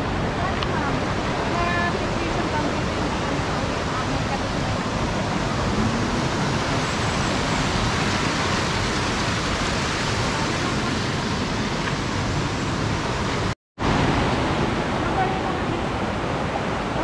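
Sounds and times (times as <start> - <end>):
flowing river water: 0.0 - 17.0.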